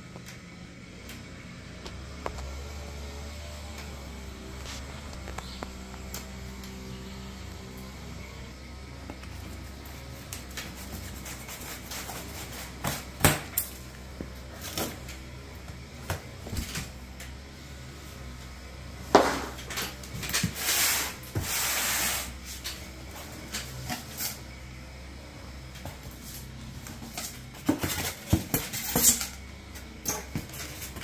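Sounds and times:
packing scraping and rustling: 30.0 - 31.0.

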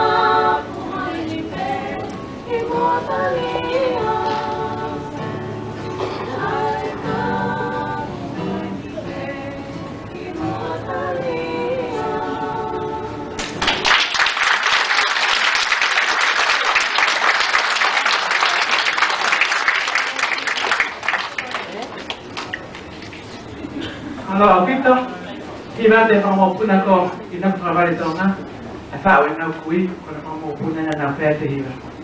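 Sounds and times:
women singing: 0.0 - 13.4
acoustic guitar: 0.0 - 14.1, 20.8 - 29.4
loud applause: 13.4 - 22.9.

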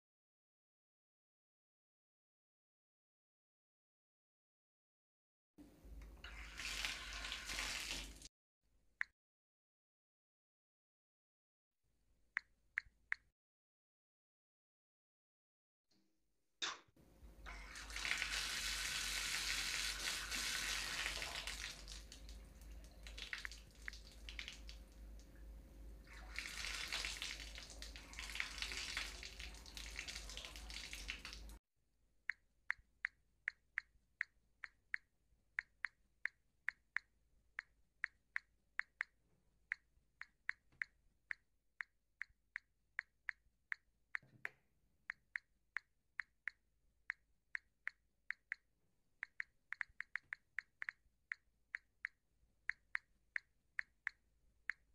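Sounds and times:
tap water splashing: 19.9 - 25.4.

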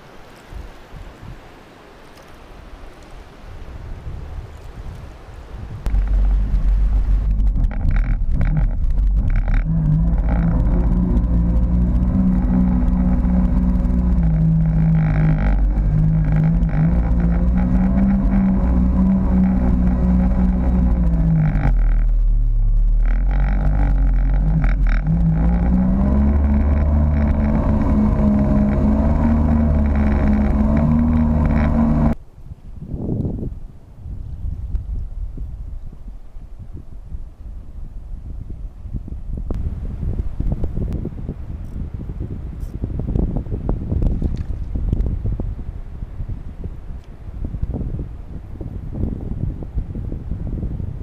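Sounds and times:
jet ski engine running: 5.8 - 32.2.

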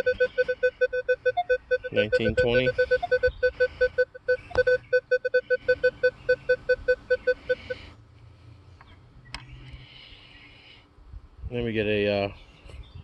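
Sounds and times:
metal detector beeping: 0.0 - 7.9.

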